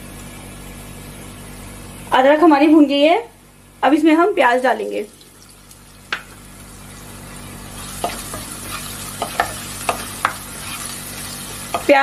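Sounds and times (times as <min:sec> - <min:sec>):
onion sizzling in hot oil: 0:04.5 - 0:12.0.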